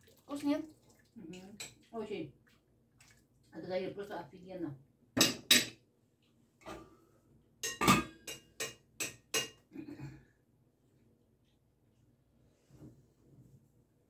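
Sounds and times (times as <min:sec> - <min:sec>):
metal kitchenware clinking on pot: 0:05.2 - 0:05.8, 0:07.6 - 0:09.6.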